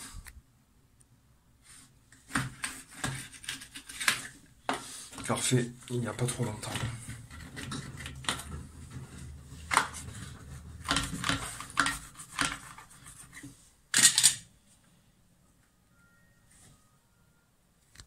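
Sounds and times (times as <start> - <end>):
tool scraping silicone: 2.3 - 13.6.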